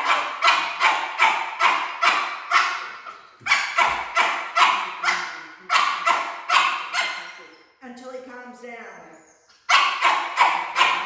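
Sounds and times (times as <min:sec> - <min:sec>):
dog barking with echo: 0:00.0 - 0:07.5, 0:09.7 - 0:11.0.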